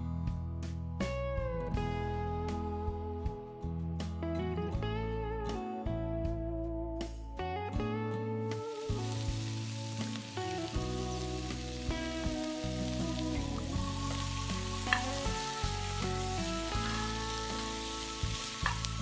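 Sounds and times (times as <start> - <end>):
soft guitar music: 0.0 - 19.0
vegetables sizzling in oil: 8.7 - 19.0.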